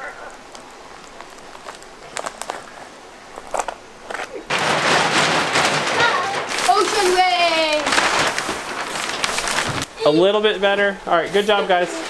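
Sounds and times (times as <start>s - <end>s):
plastic sheeting crinkling: 0.0s - 12.0s.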